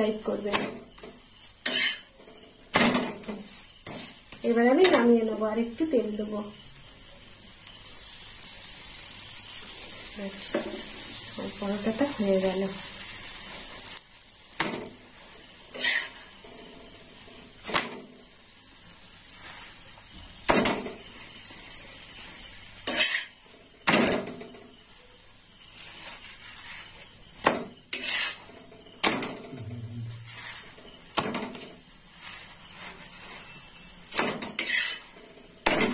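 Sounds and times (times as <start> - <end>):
faint steady hiss: 0.0 - 35.9
metal spatula scraping griddle: 0.5 - 5.4, 14.6 - 18.1, 22.2 - 24.6, 25.6 - 35.9.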